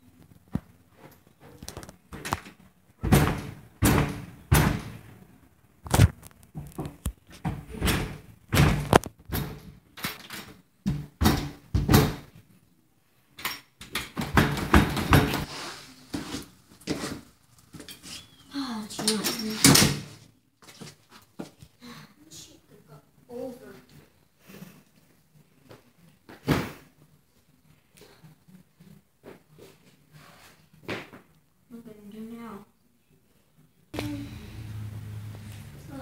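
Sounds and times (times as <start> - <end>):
loud banging on a door: 3.0 - 5.1, 7.5 - 9.6, 10.9 - 12.3, 14.2 - 15.5.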